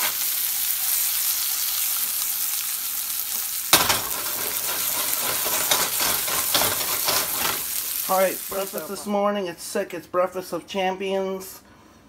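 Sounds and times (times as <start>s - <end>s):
food sizzling in a frying pan: 0.0s - 9.2s.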